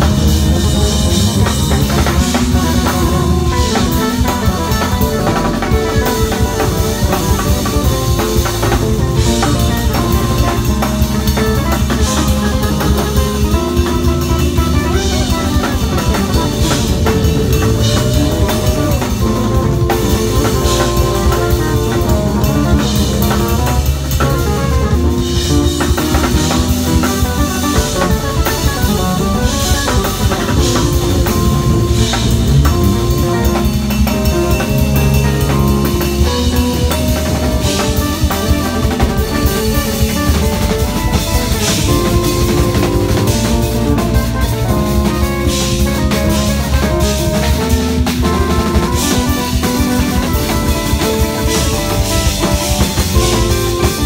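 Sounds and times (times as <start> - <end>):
drum kit with cymbals: 0.0 - 54.0
electric bass guitar: 0.0 - 54.0.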